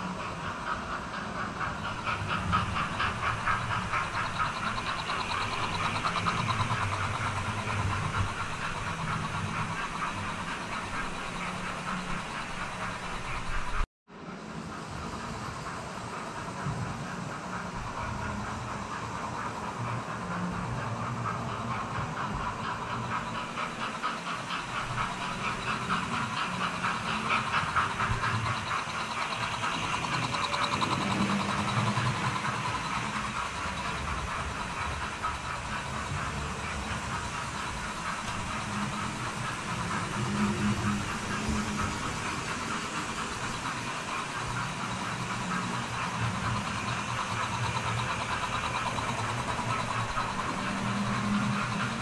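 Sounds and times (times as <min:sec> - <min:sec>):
wheels rattling on rails: 0:00.0 - 0:52.0.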